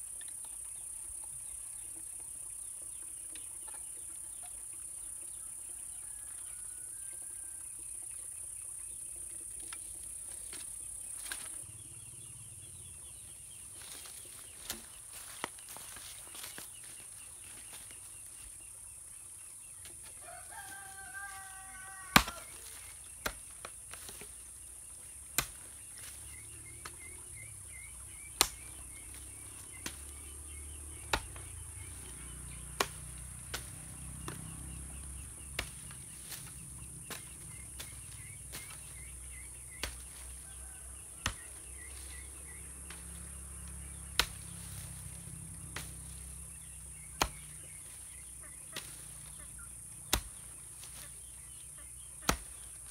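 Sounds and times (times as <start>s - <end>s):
rooster crowing: 5.7s - 7.6s, 20.2s - 22.6s, 40.4s - 41.2s
hoe chopping into soil: 10.4s - 11.6s, 13.1s - 18.2s, 19.8s - 52.9s.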